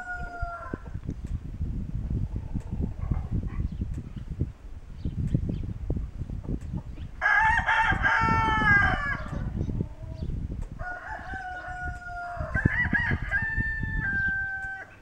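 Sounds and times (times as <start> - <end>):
rooster crowing: 0.0 - 0.9, 7.2 - 9.5, 10.8 - 15.0.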